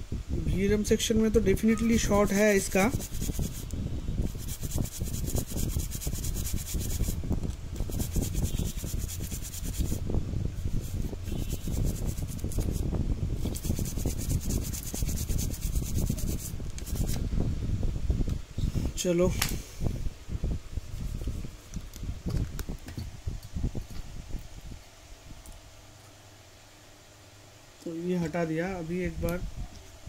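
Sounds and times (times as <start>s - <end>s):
bristle brush scrubbing: 1.9s - 7.2s, 7.8s - 10.0s, 10.6s - 17.2s.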